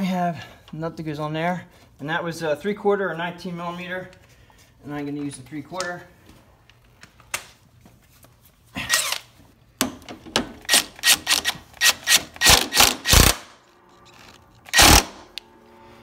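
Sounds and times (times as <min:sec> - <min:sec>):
impact wrench bursts: 0:10.6 - 0:13.5, 0:14.1 - 0:15.4.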